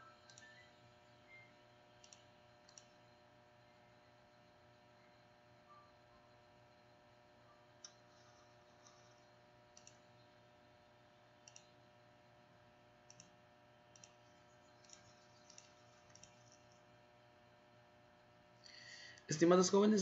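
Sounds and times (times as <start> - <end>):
low electrical hum: 0.0 - 20.0
computer mouse clicks: 0.2 - 0.6, 2.0 - 3.0, 7.8 - 10.2, 11.4 - 11.8, 13.0 - 16.9.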